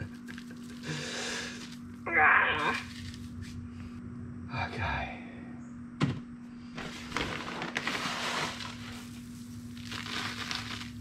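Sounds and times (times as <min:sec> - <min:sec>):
granules pouring onto concrete: 0:09.8 - 0:11.0.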